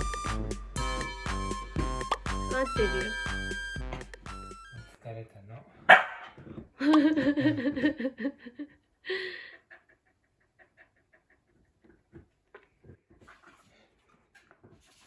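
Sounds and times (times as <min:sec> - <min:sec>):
dog panting: 0:09.4 - 0:15.0.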